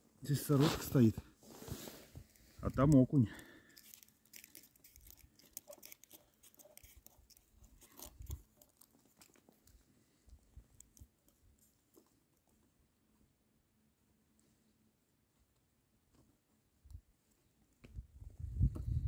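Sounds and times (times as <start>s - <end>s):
small handling clicks and crunches: 2.2s - 12.7s.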